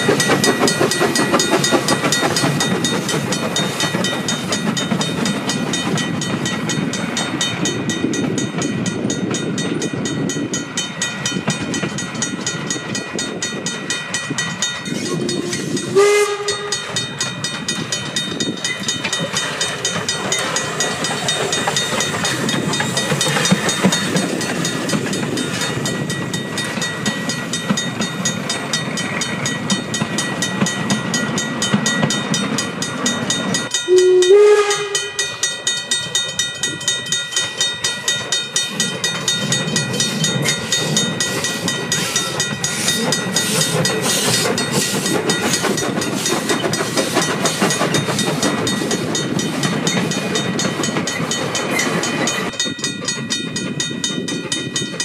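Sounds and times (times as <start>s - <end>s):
steam locomotive exhaust and wheels: 0.0s - 55.0s
steam whistle blasts: 15.1s - 16.8s, 33.9s - 35.2s.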